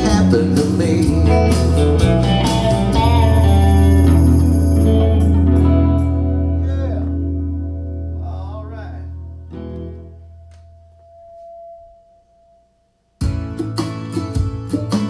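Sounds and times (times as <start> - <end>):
electric guitar and bass chord: 0.0 - 11.7
held high tone: 8.1 - 13.2.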